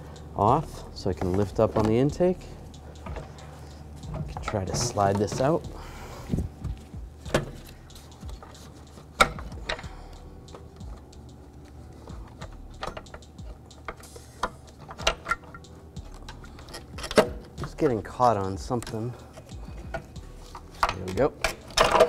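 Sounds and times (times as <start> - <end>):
metal part clicking and knocking: 8.4 - 9.9, 12.2 - 17.8, 20.8 - 22.0.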